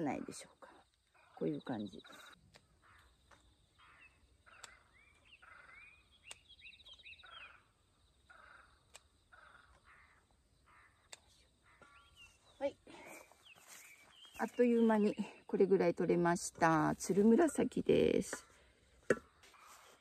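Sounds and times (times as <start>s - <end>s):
faint birds chirping: 0.0s - 20.0s
sharp clicks: 2.3s - 3.4s, 4.5s - 4.8s, 6.2s - 7.0s, 8.8s - 9.8s.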